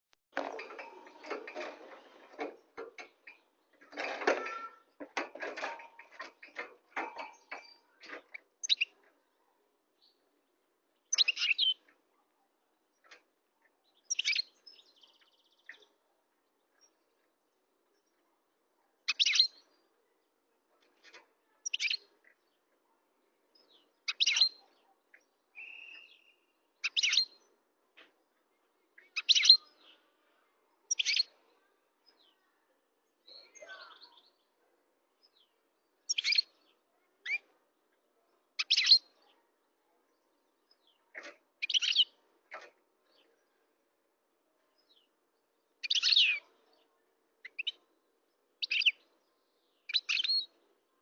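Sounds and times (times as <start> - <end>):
goldfinch twittering song: 6.2 - 9.0, 11.0 - 11.8, 13.9 - 16.0, 19.1 - 19.8, 23.6 - 27.5, 29.0 - 30.0, 30.9 - 31.3, 35.2 - 37.5, 38.6 - 39.3, 41.6 - 42.2, 45.7 - 46.8, 47.4 - 47.9, 48.6 - 50.6.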